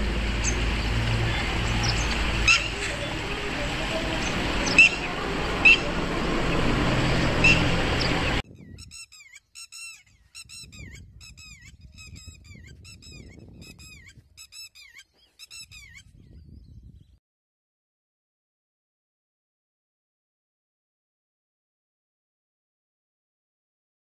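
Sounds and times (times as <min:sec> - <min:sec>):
loud steady rushing noise: 0:00.0 - 0:08.4
lapwing calling: 0:00.0 - 0:16.1.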